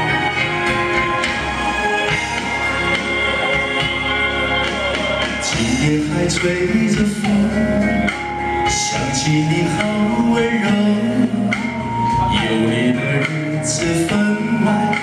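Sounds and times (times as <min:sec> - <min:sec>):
instrumental backing music: 0:00.0 - 0:15.0
man singing pop ballad: 0:05.0 - 0:15.0.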